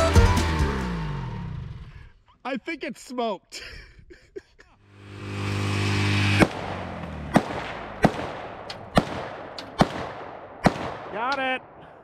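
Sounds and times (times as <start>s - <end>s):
lawnmower engine running: 4.9s - 8.0s
rifle shots: 6.3s - 11.5s.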